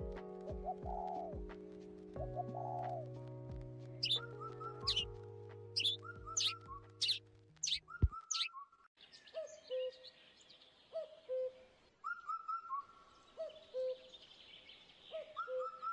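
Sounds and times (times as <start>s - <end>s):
background music: 0.0s - 8.5s
birds chirping: 4.0s - 5.1s, 5.8s - 8.6s.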